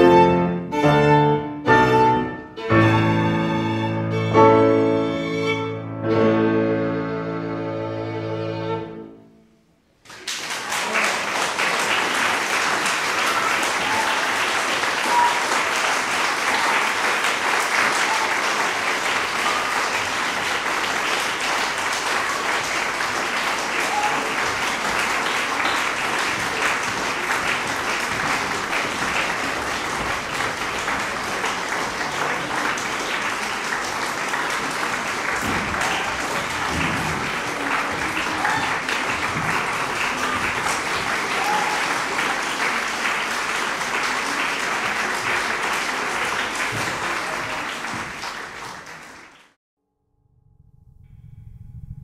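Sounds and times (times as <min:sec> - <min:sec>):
audience applauding: 0:10.0 - 0:49.6.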